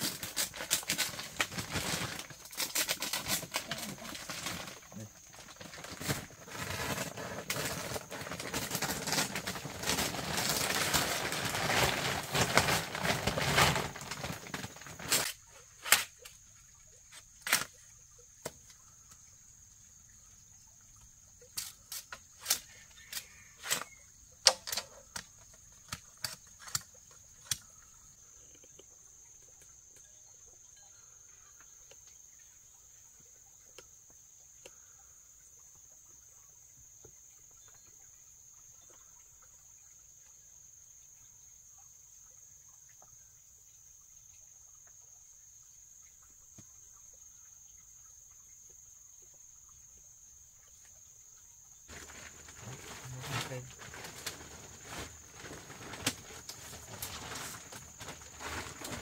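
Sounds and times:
plastic tarp rustling: 0:00.0 - 0:16.3, 0:51.9 - 0:59.0
insects chirring: 0:00.0 - 0:59.0.

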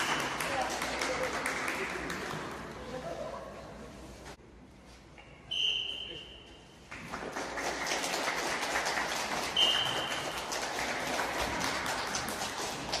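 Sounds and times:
spectators clapping: 0:00.0 - 0:02.8, 0:06.9 - 0:13.0
shrill whistle blast: 0:05.5 - 0:06.6, 0:09.6 - 0:10.3.

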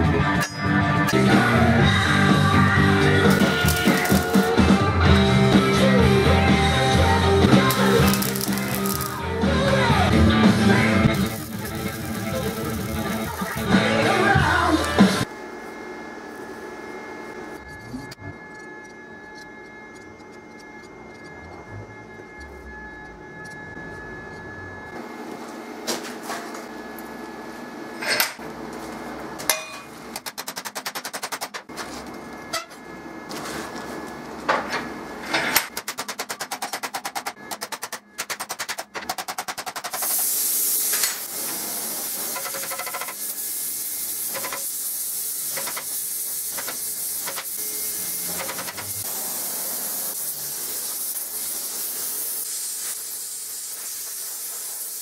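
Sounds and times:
gas torch hissing: 0:03.1 - 0:04.7, 0:07.3 - 0:09.3, 0:10.7 - 0:15.3, 0:40.0 - 0:55.0.

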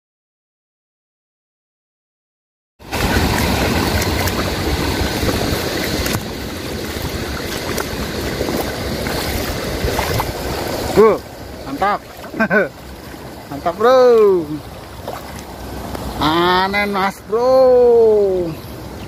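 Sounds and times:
wind rumbling on microphone: 0:02.8 - 0:16.2
river water splashing: 0:02.8 - 0:19.0.

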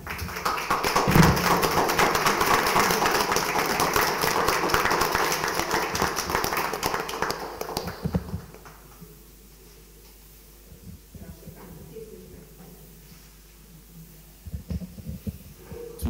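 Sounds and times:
people clapping: 0:00.0 - 0:09.0.

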